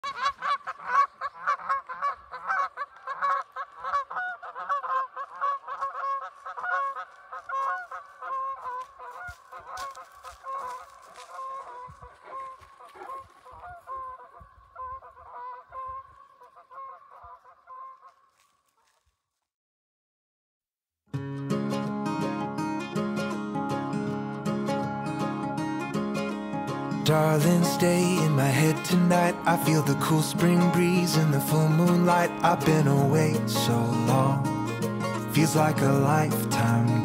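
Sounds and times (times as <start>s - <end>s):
geese honking: 0.0s - 18.5s, 27.0s - 37.0s.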